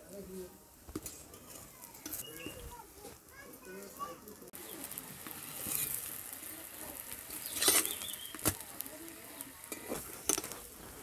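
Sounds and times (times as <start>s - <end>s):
oil sizzling: 0.0s - 11.0s
metal spatula scraping a pan: 5.2s - 6.3s, 7.1s - 8.6s, 9.6s - 11.0s.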